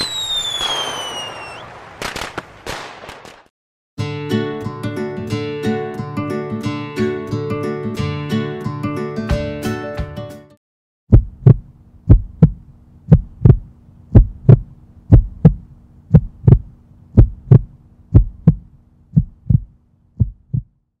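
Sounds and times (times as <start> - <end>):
heartbeat thumps: 11.1 - 20.8.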